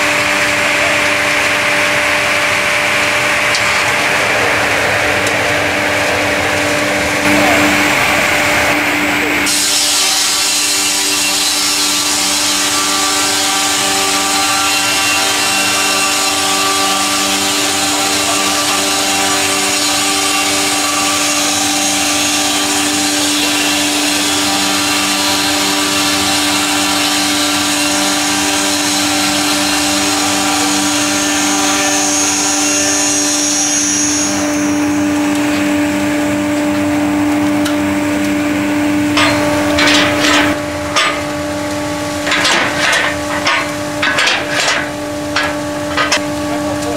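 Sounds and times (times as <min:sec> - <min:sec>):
circular saw whine: 0:00.0 - 0:46.9
saw hiss: 0:09.4 - 0:35.7
timber knocks: 0:42.2 - 0:46.3.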